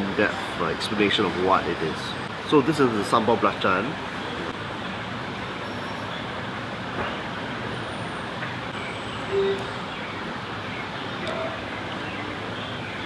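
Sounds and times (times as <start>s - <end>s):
road traffic: 0.0s - 13.0s
short single tone: 9.3s - 9.8s.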